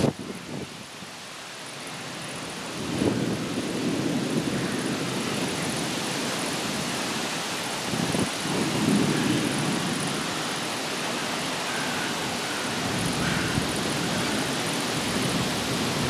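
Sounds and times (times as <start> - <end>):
rain hiss: 0.0 - 16.0
low rumble of thunder: 2.8 - 5.9, 7.9 - 10.5.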